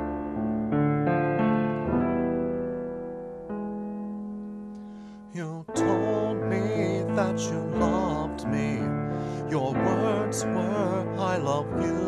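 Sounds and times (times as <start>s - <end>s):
piano chords on keyboard: 0.0s - 12.0s
person's voice: 5.4s - 12.0s.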